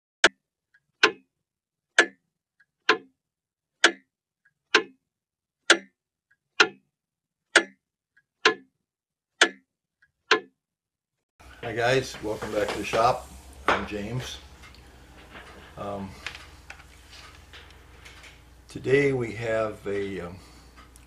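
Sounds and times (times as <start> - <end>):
mechanical clock ticking: 0.2 - 1.3, 1.9 - 3.2, 3.8 - 5.0, 5.6 - 6.9, 7.5 - 8.7, 9.4 - 10.6.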